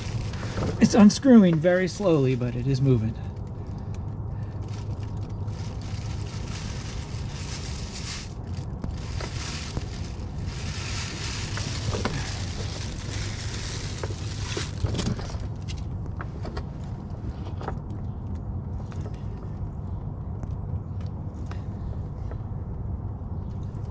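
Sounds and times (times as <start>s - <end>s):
plastic bag crinkling: 0.0s - 15.7s
low steady hum: 0.0s - 23.9s.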